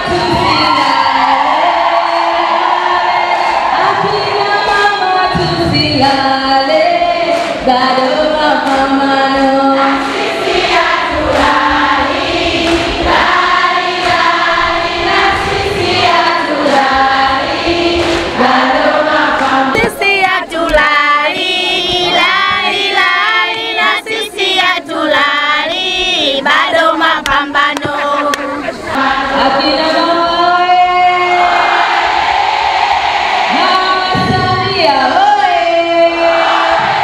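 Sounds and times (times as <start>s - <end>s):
women singing in chorus: 0.0s - 37.0s.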